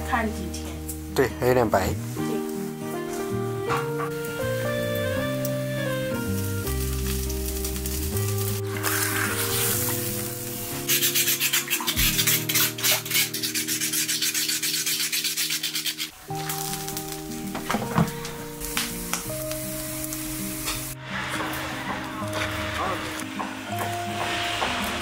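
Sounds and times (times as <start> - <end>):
background music: 0.0 - 25.0
scrubbing in an iron wok: 6.6 - 17.5, 19.9 - 25.0.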